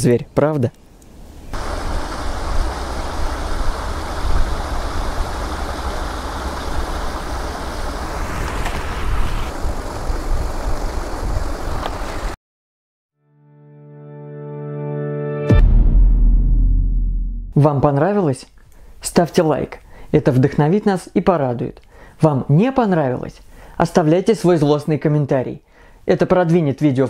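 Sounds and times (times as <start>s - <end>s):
water rushing over a dam: 1.6s - 12.4s
music: 13.2s - 17.5s
low rumble: 15.5s - 17.6s.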